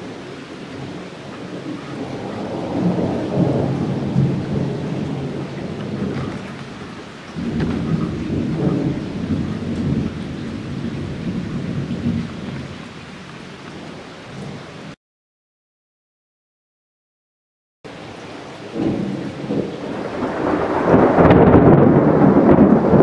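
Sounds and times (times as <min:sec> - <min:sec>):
steady rain: 0:00.0 - 0:15.0, 0:17.9 - 0:23.0
thunder rumbling: 0:00.0 - 0:15.0, 0:18.6 - 0:23.0.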